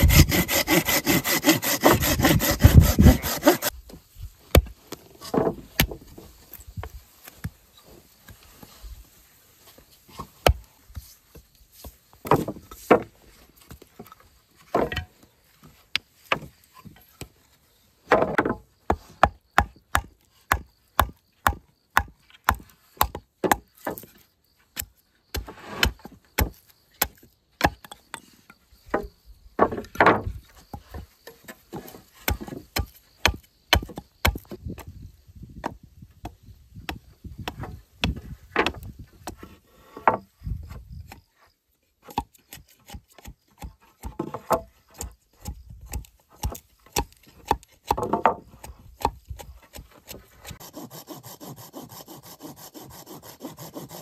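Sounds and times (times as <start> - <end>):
tool striking wooden boards: 0.0 - 3.7, 19.2 - 23.6, 45.9 - 48.4.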